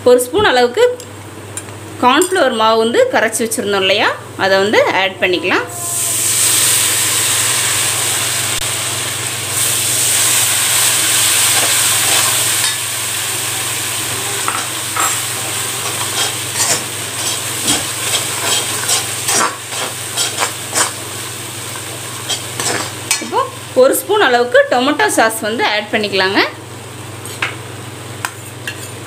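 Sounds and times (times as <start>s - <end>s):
slurry sizzling in hot oil: 5.8s - 24.2s.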